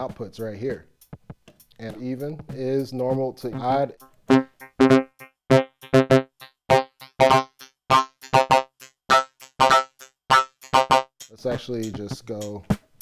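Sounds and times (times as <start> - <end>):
ringing pitched synth beat: 4.3 - 11.7.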